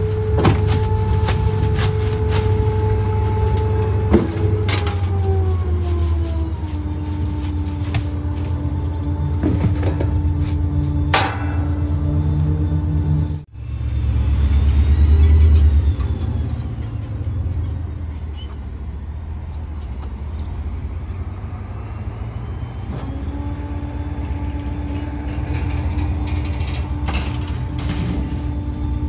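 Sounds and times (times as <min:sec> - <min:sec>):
garbage truck engine idling: 0:00.0 - 0:19.6, 0:22.7 - 0:29.0
steady whine: 0:06.4 - 0:17.0.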